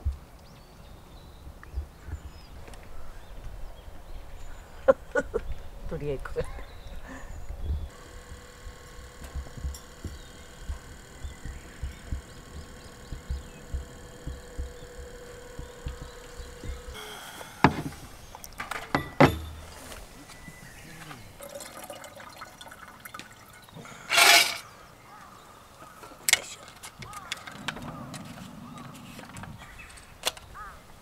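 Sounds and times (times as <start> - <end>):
low thumps: 7.6 - 20.0
metal and wood clattering: 17.6 - 20.1, 24.1 - 24.6
water being poured: 21.4 - 24.6.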